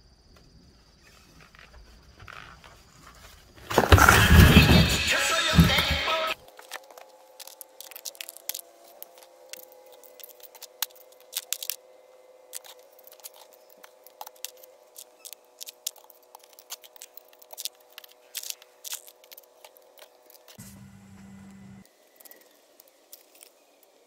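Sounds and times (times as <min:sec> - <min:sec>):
faint steady hum: 0:00.0 - 0:24.0
small stones clicking together: 0:06.6 - 0:11.8, 0:12.5 - 0:20.6.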